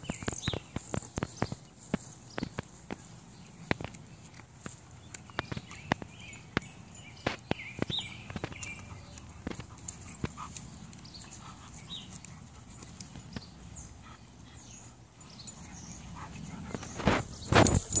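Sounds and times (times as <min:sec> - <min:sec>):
teeth clicking on wood: 0:07.4 - 0:13.5.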